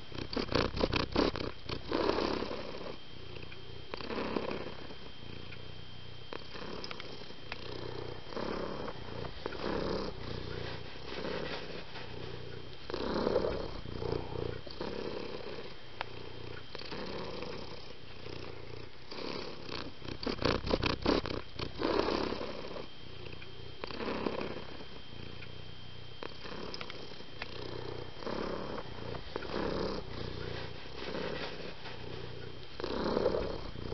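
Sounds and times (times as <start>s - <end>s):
cat purring: 0.0s - 33.9s.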